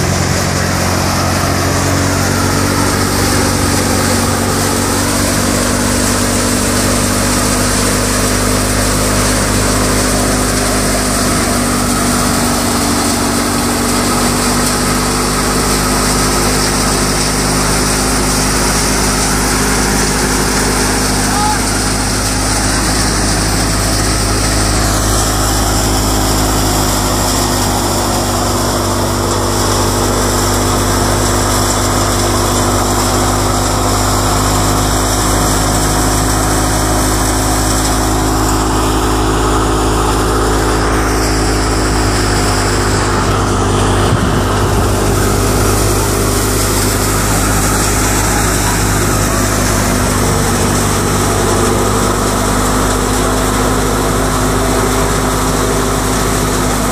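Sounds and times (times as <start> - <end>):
crop thresher running: 0.0 - 56.9
grain pouring: 0.0 - 56.9
tractor engine: 0.0 - 56.9.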